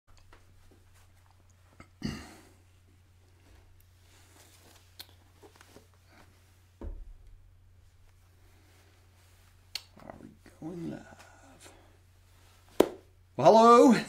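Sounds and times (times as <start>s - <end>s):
low electrical hum: 0.1s - 14.0s
soft thump: 6.8s - 7.4s.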